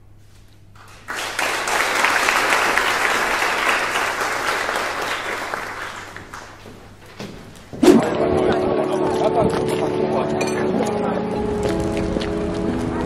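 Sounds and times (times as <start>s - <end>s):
audience applauding: 0.8s - 7.0s.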